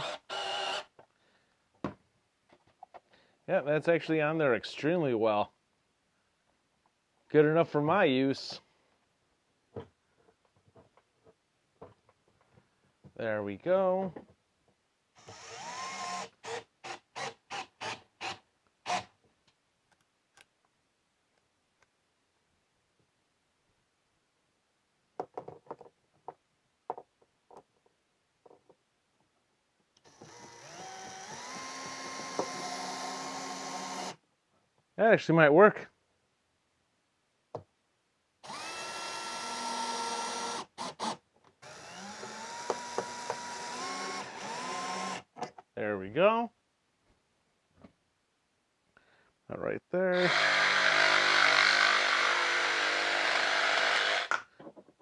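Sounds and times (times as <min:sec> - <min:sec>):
cordless drill whirring: 0:00.0 - 0:00.9, 0:15.2 - 0:19.0, 0:30.0 - 0:34.2, 0:38.4 - 0:45.3, 0:50.3 - 0:54.4.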